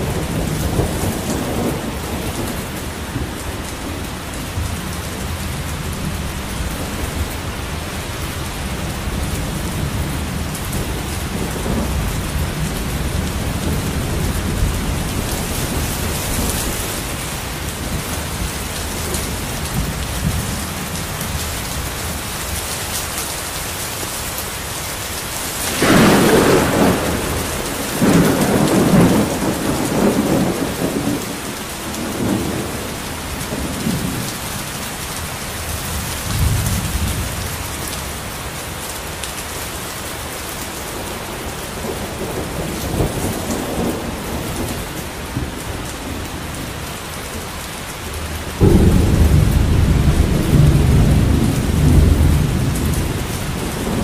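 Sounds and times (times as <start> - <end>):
rolling thunder rumbles: 0.0 - 22.6, 25.4 - 38.4, 40.9 - 47.5, 48.1 - 54.0
steady rain: 0.0 - 54.0
thunderclap: 25.6 - 34.4, 48.6 - 54.0.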